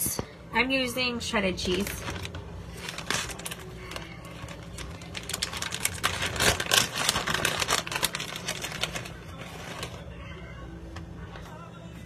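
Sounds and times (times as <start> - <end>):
plastic bag crinkling: 1.6 - 10.2.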